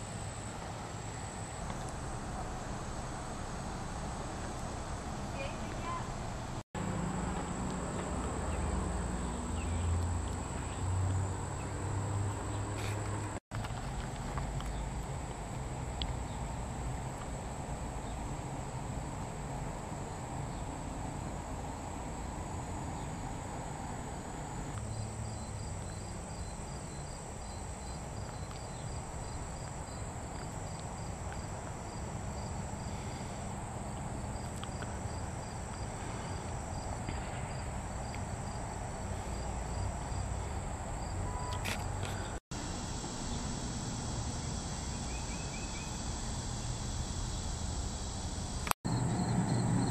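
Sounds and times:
insects buzzing: 0.0s - 49.9s
pulsed insect chirps: 42.6s - 49.9s.

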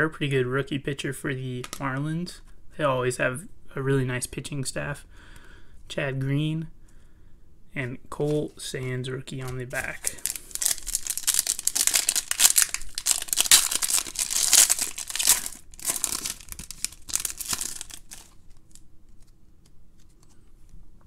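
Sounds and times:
card pack wrapper crinkling: 9.4s - 19.4s.

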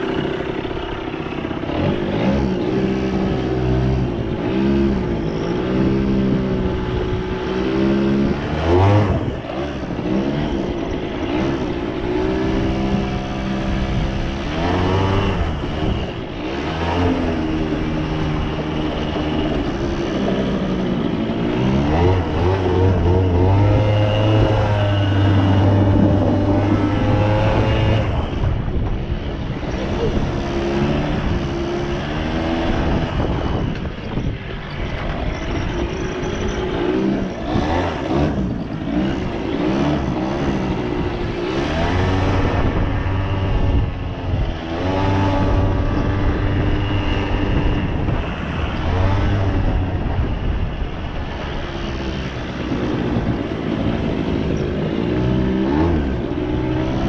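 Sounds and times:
two-stroke engine revving: 0.0s - 57.0s.

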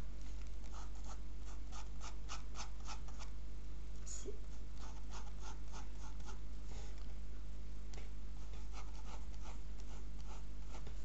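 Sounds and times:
low electrical hum: 0.0s - 11.0s
pencil sketching on paper: 0.7s - 3.2s, 4.8s - 6.4s, 8.4s - 11.0s.

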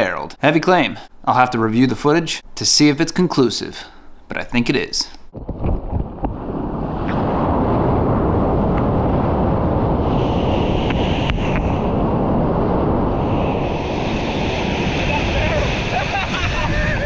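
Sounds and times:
wind buffeting microphone: 5.3s - 17.0s
ocean surf rushing: 6.2s - 17.0s.

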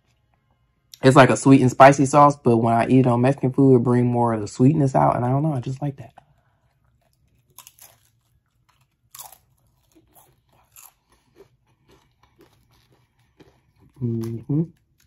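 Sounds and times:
person chewing crunchy chips: 6.1s - 15.0s.

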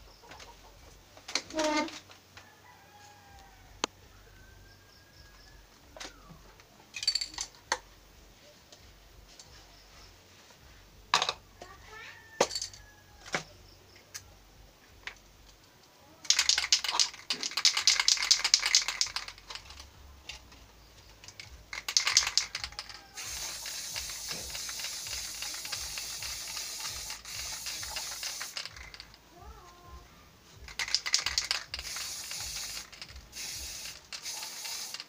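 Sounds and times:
spray can ball rattling: 1.5s - 2.0s, 7.0s - 7.6s, 16.2s - 29.6s, 30.6s - 35.0s
spray can hissing: 16.3s - 19.8s, 21.2s - 29.1s, 30.7s - 35.0s.

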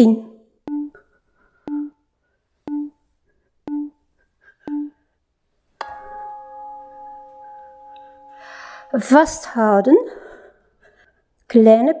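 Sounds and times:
sustained ringing chord: 5.8s - 9.8s.

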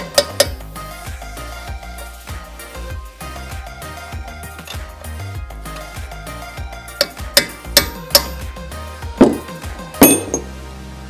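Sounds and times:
hammer tapping steel punch: 0.0s - 0.6s, 7.0s - 8.4s, 9.2s - 10.5s
background music: 0.0s - 11.0s.

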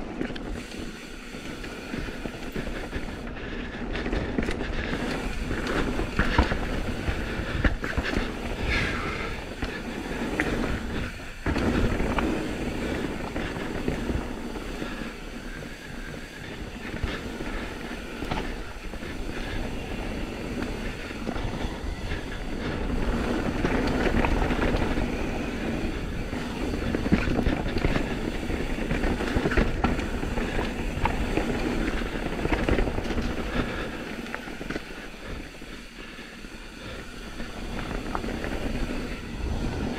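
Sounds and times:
mountain bike rattling: 0.0s - 39.9s
tyres rumbling on dirt: 0.0s - 39.9s.

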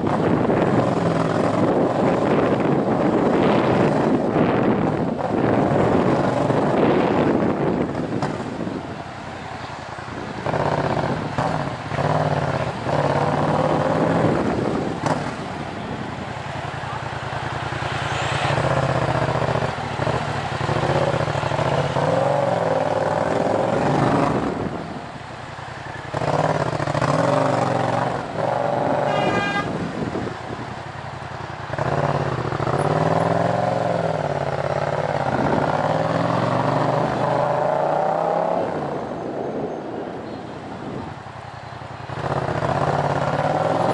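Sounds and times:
motorcycle engine revving: 0.0s - 8.8s, 10.2s - 39.1s, 42.0s - 43.9s
car horn: 28.6s - 30.0s.

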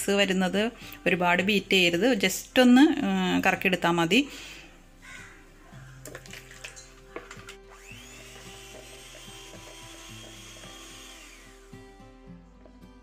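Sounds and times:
electric hand mixer whining: 7.2s - 12.4s.

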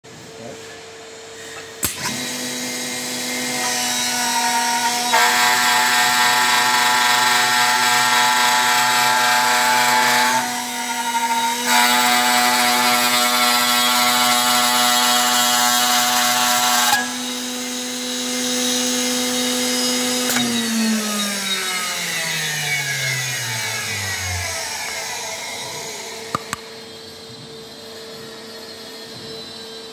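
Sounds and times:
cutter milling wood: 1.8s - 27.7s
electric motor humming: 20.2s - 27.9s
motor switch click: 26.3s - 26.7s.

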